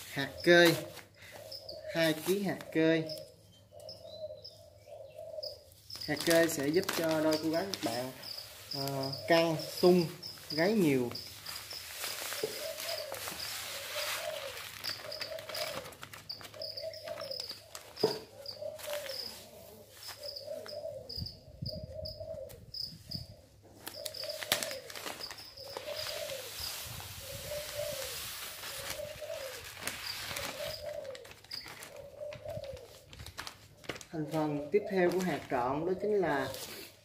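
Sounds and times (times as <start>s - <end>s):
plastic bag rustling: 0.0s - 2.8s, 5.8s - 20.8s, 23.8s - 37.0s
doves cooing: 0.0s - 37.0s
rapid high chirping: 3.1s - 19.4s.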